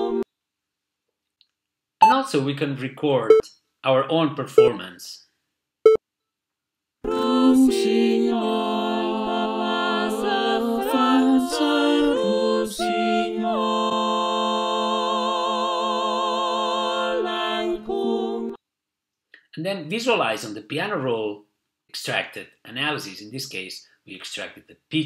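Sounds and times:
synthesized choir singing in harmony: 0:00.0 - 0:00.2, 0:07.0 - 0:18.6
short beep: 0:04.6 - 0:04.8.

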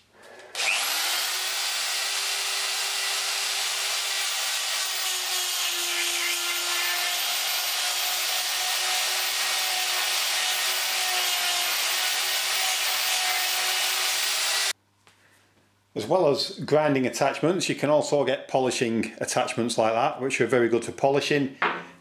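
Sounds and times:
die grinder grinding steel: 0:00.5 - 0:14.7.

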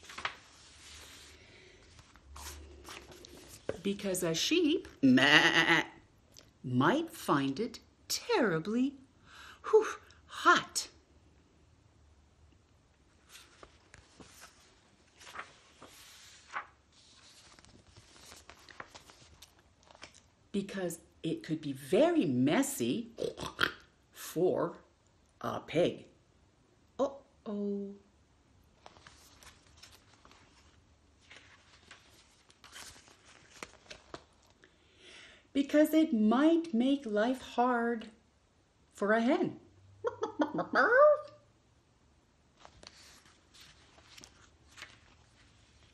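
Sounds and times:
paper pages rustling and turning: 0:00.0 - 0:05.0, 0:13.1 - 0:20.4, 0:28.7 - 0:34.6, 0:42.5 - 0:45.9
book page rustling and taps: 0:02.4 - 0:03.8.

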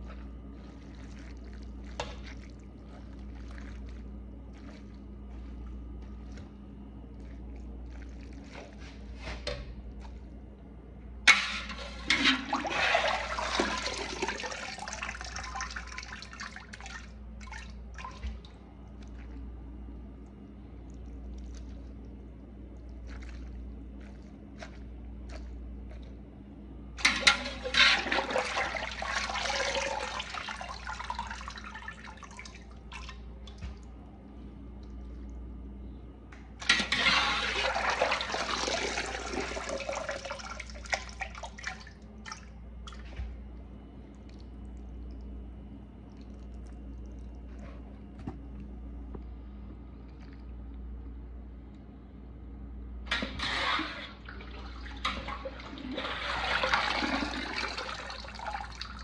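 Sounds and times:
water pouring and splashing: 0:00.0 - 0:10.3, 0:11.3 - 0:19.6, 0:20.7 - 0:26.2, 0:27.0 - 0:34.0, 0:36.6 - 0:43.4, 0:53.1 - 0:59.0
water dripping: 0:37.8 - 0:47.5.

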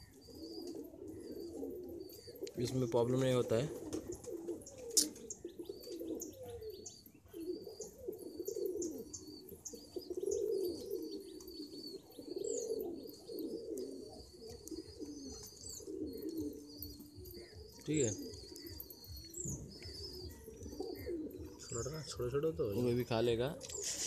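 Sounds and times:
pigeons cooing: 0:00.0 - 0:24.0.

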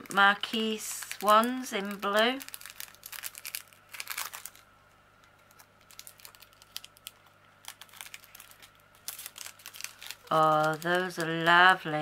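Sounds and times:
plastic bag crinkling: 0:00.0 - 0:04.7, 0:05.3 - 0:12.0
beads clicking in bag: 0:05.8 - 0:11.4.

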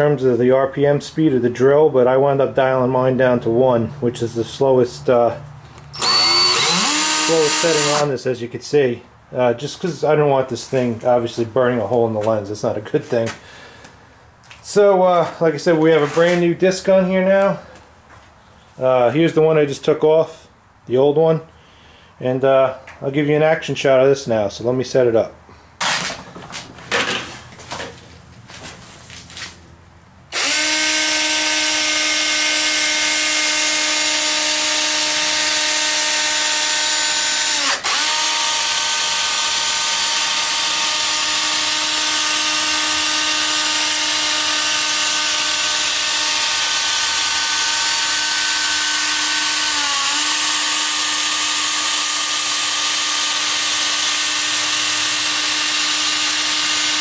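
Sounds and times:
cordless drill sanding plastic: 0:06.0 - 0:08.1, 0:30.4 - 0:57.0.

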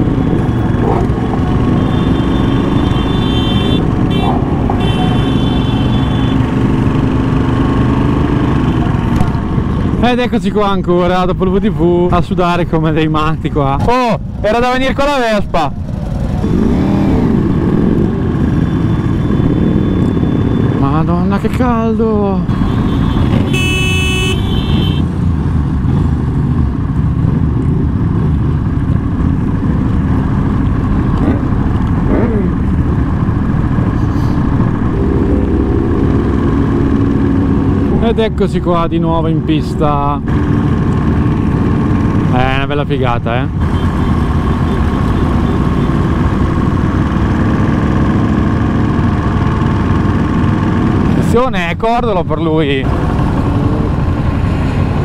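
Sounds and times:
motorcycles idling: 0:00.0 - 0:10.1
pack of motorcycles riding: 0:00.0 - 0:55.0.

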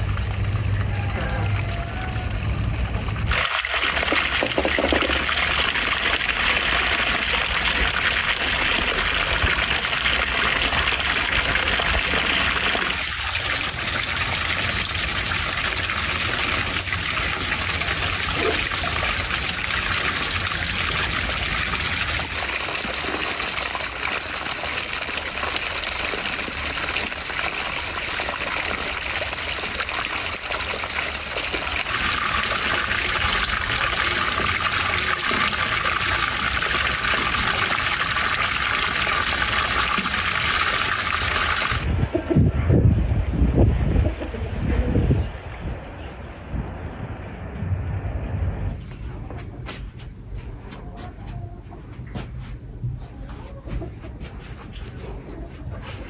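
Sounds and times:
fountain water splashing on stones: 0:00.0 - 0:41.9.

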